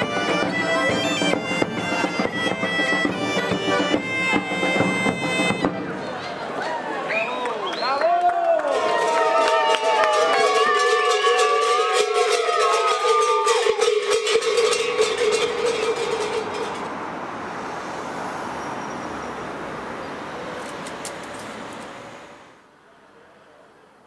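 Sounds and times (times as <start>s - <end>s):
bagpipe-like folk music: 0.0s - 6.0s
distant traffic rush: 0.0s - 8.1s, 13.2s - 24.0s.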